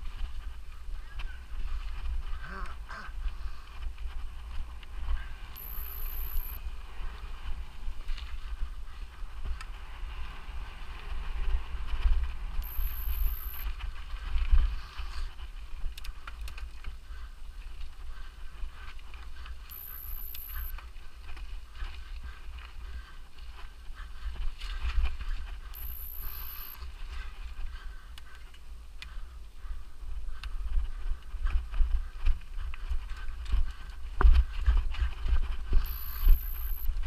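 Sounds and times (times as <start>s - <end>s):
wind rumbling on microphone: 0.0s - 37.0s.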